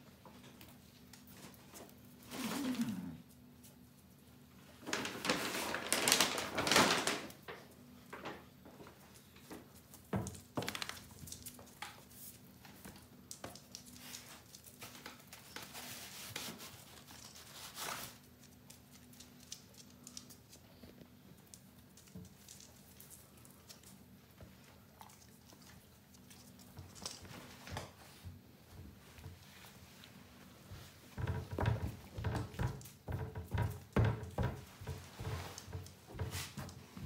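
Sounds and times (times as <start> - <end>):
paper bag crinkling and rustling: 4.7 - 7.6.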